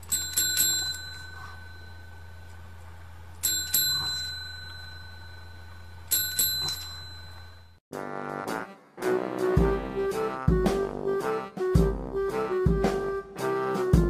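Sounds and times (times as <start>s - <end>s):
small metal bell dinging: 0.0s - 2.4s, 3.4s - 7.8s
steady low hum: 0.0s - 7.8s.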